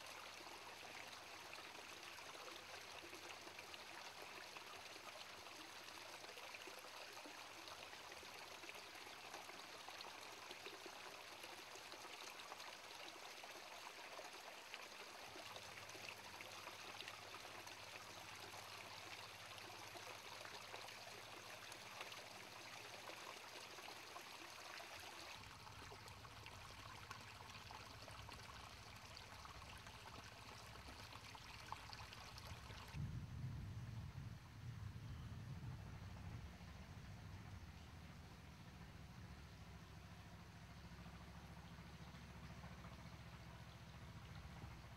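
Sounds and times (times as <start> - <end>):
water trickling over rock: 0.0 - 33.0
low rumble: 33.0 - 38.2.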